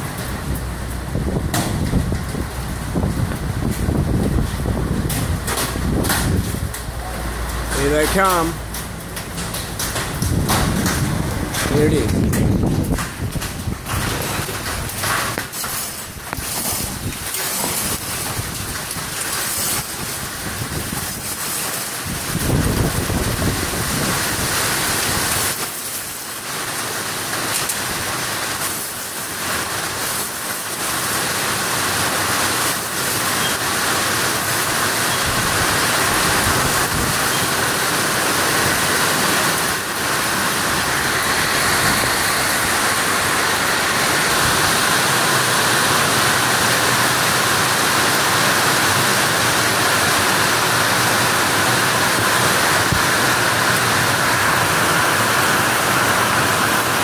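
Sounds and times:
hail and heavy rain on pavement: 0.0s - 57.0s
low rumble: 8.6s - 14.9s.

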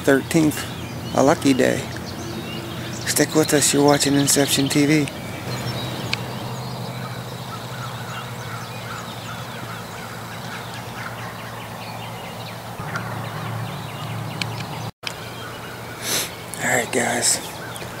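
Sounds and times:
road traffic hum: 0.0s - 18.0s
songbirds chirping: 0.0s - 18.0s
distant turkeys gobbling: 5.3s - 12.0s, 12.8s - 16.3s.

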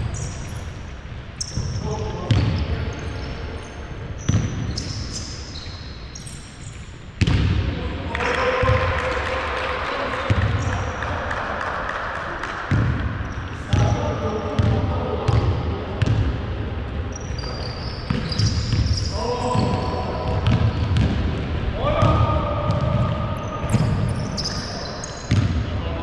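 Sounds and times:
sneaker squeaks: 0.0s - 7.4s, 17.1s - 21.2s, 22.1s - 25.6s
basketball bouncing on wooden floor: 19.6s - 21.4s, 25.3s - 25.6s.

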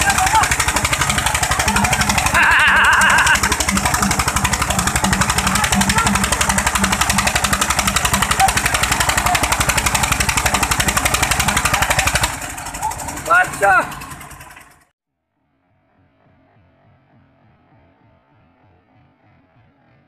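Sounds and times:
man shouting: 0.0s - 0.6s, 12.8s - 13.9s
tractor diesel engines thudding: 0.0s - 14.9s.

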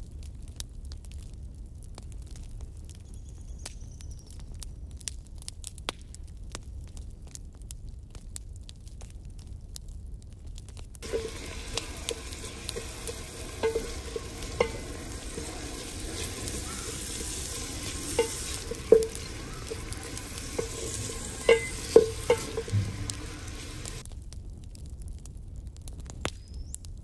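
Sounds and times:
food sizzling in oil: 11.0s - 24.0s
ladle scraping a metal pot: 11.0s - 24.0s.

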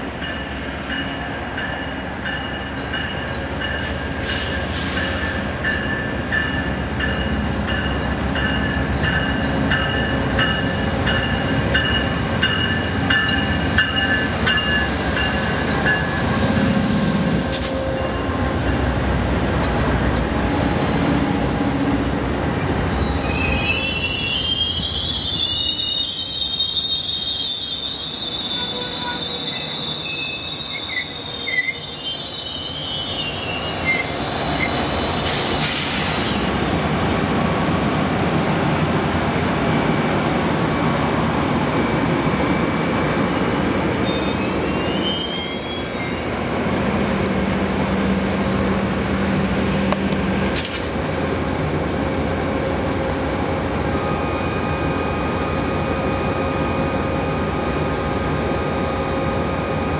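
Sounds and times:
train wheels rumbling on rail: 0.0s - 59.9s
high-pitched wheel squeal: 21.5s - 35.4s, 43.4s - 46.3s.

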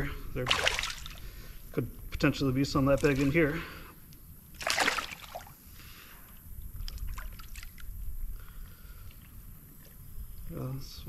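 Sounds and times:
fish splashing: 0.4s - 1.5s, 4.5s - 5.7s, 6.8s - 8.0s.

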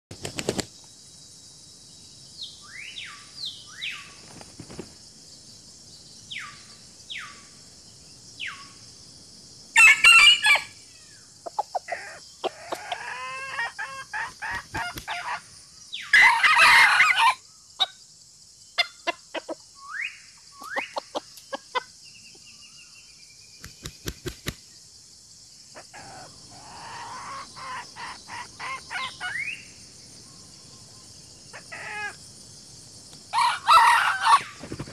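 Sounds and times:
rooster crowing: 9.8s - 10.8s, 12.0s - 15.4s, 16.1s - 17.4s, 33.3s - 34.6s
hens clucking: 11.5s - 15.4s.

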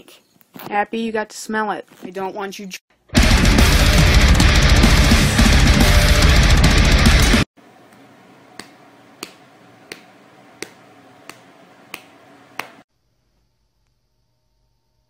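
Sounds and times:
heavy metal music: 3.1s - 7.5s.

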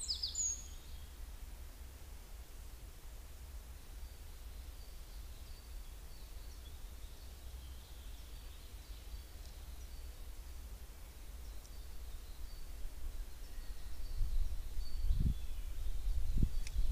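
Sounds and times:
distant birdsong chirps: 0.0s - 1.3s, 3.7s - 16.9s
low microphone rumble: 12.0s - 16.9s.

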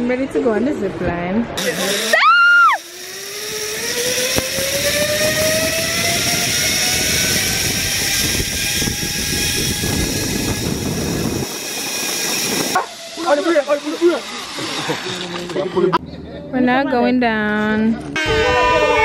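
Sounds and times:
pulleys whirring on cable: 1.6s - 16.0s
wind on microphone: 3.5s - 13.0s.

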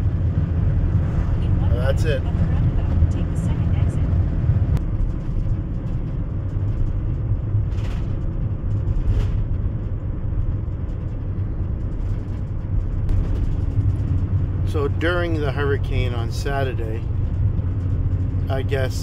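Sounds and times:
vehicle road noise rumble: 0.0s - 19.0s.

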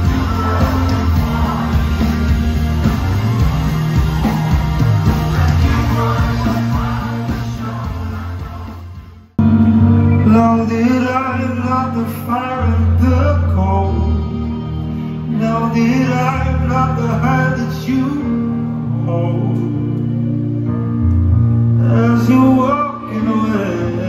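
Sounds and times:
man singing slow song: 5.0s - 9.0s, 10.1s - 20.3s, 21.7s - 24.0s.

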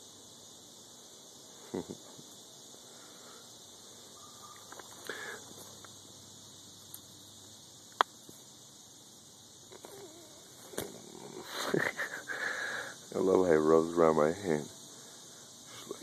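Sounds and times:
low background hiss: 0.0s - 16.0s.

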